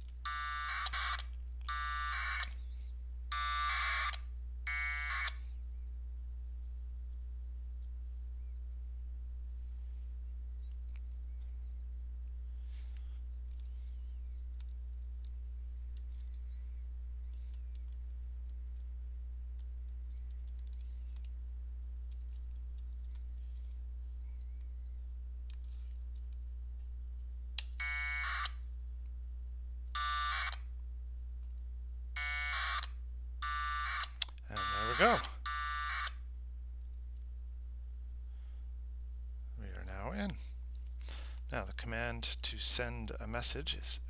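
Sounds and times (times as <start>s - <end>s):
low electrical hum: 0.0s - 44.0s
radio data bursts: 33.4s - 36.2s.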